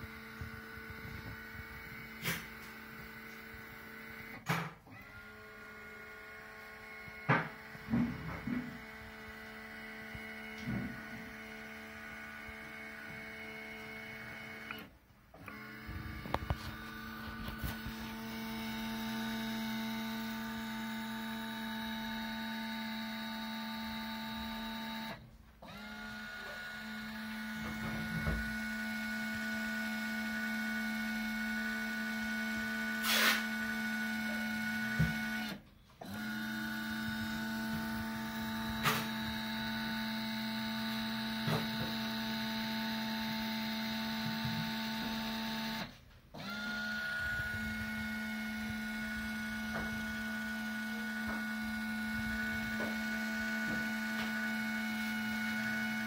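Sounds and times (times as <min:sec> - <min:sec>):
lift drive whining: 0:00.0 - 0:56.0.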